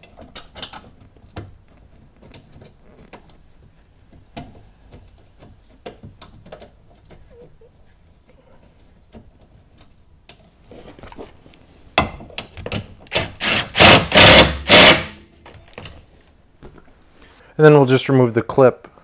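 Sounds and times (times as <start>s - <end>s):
impact wrench hammering on bolt: 13.1s - 15.2s.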